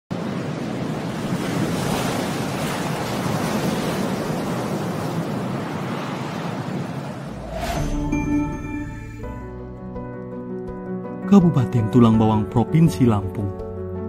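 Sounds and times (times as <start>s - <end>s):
wind: 0.1s - 9.2s
sea waves rushing: 0.1s - 9.6s.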